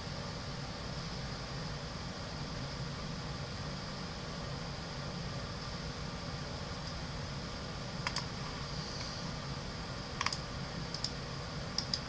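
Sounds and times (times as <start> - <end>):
low room hum: 0.0 - 12.0
computer mouse clicks: 8.0 - 8.3, 10.2 - 11.2, 11.8 - 12.0.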